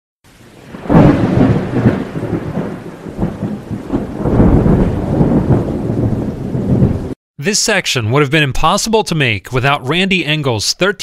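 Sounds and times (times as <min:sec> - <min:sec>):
rain: 0:00.2 - 0:07.2
thunder rumbling: 0:00.3 - 0:07.2.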